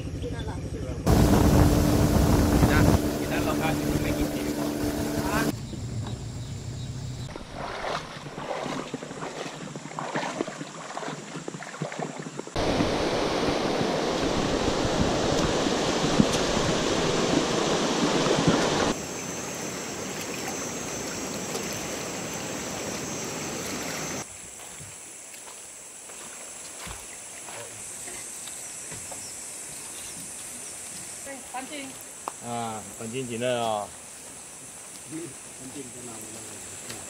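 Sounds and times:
rushing river water: 1.1s - 5.5s, 7.3s - 37.0s
high steady hum: 1.1s - 5.6s.

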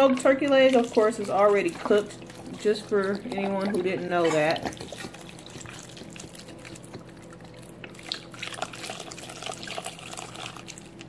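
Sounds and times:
broth pouring into a pot: 8.0s - 11.0s.

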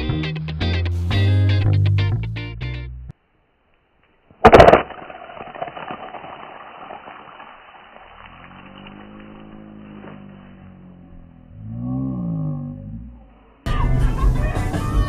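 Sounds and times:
ice fragments skittering: 4.3s - 10.3s
ice shard shattering on ice: 4.4s - 9.3s
low droning tone: 8.1s - 13.6s.

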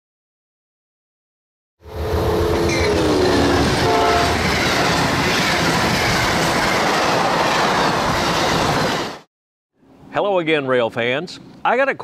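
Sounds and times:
train horn: 1.8s - 4.4s
train wheels rushing and rattling: 2.6s - 9.3s.

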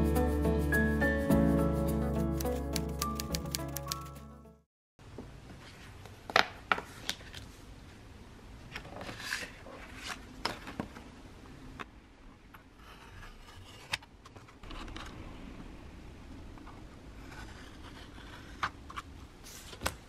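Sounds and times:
sharp clicks and taps: 2.4s - 4.1s
paper handling noise: 2.4s - 4.2s.

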